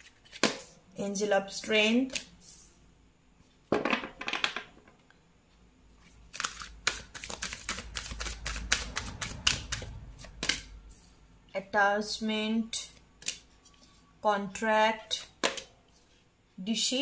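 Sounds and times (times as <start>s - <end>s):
cards rustling: 0.0s - 0.7s, 6.0s - 10.8s
cards clicking while shuffled: 6.3s - 10.7s.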